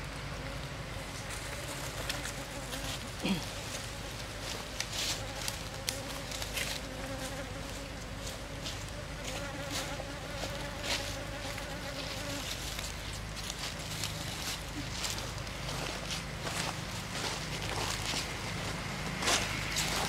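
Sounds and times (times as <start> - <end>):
bee buzzing in flight: 0.4 - 12.9.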